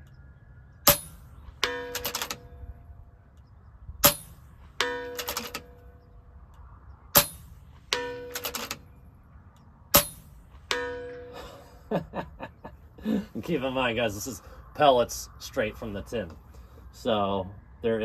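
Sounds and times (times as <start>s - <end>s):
air rifle shots: 0.8s - 2.7s, 4.0s - 5.9s, 7.1s - 8.9s, 9.9s - 11.4s
pellet ringing on steel target: 0.9s - 2.6s, 4.0s - 5.9s, 7.2s - 8.7s, 10.0s - 11.3s.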